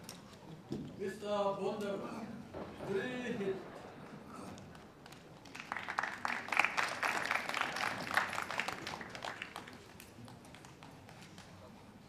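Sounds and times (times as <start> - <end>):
spectators applauding: 4.6 - 11.8.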